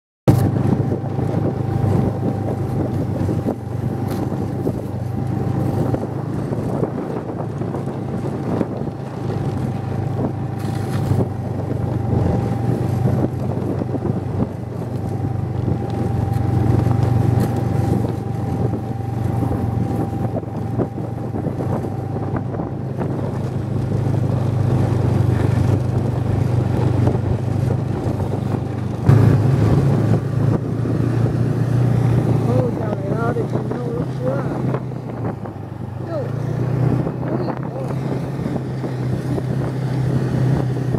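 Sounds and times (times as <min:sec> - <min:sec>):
snowmobile engine drone: 0:00.3 - 0:40.9.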